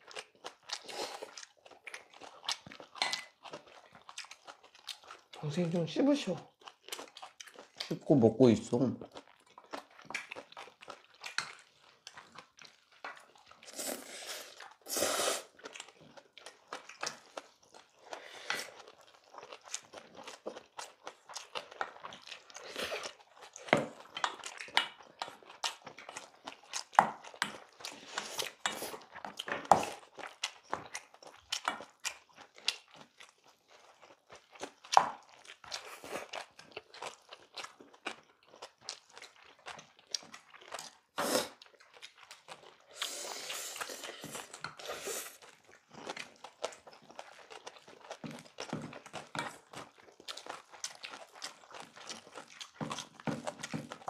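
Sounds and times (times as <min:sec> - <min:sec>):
people chewing and crunching: 0:00.0 - 0:54.0.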